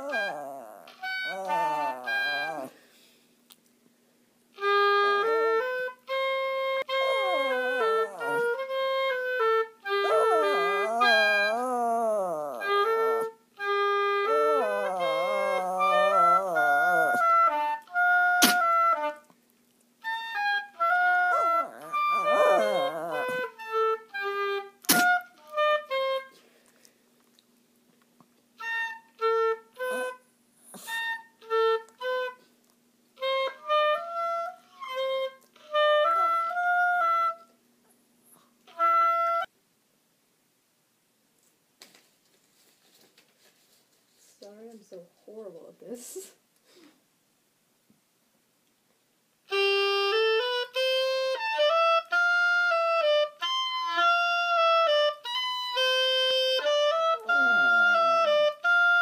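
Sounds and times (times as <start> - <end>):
dog howling: 0.0 - 2.7, 6.9 - 8.8, 9.9 - 13.3, 14.2 - 17.6, 21.0 - 23.6
oboe playing: 0.0 - 2.7, 4.6 - 19.2, 20.0 - 26.4, 28.6 - 30.2, 30.8 - 32.4, 33.2 - 37.5, 38.7 - 39.5, 49.5 - 59.0.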